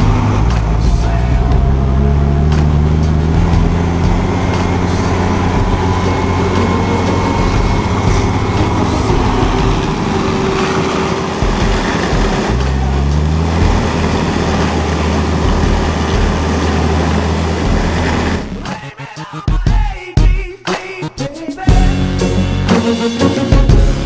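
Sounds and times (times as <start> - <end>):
tractor diesel engine running: 0.0 - 18.8.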